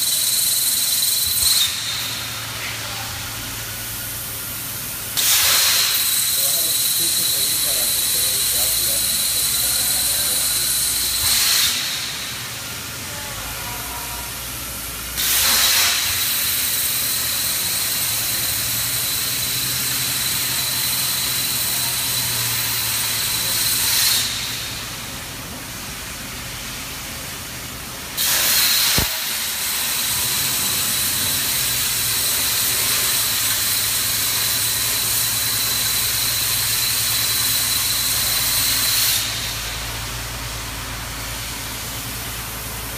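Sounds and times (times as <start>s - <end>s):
plasma cutter hissing and whining: 0.0s - 42.9s
sharp click: 28.3s - 29.2s.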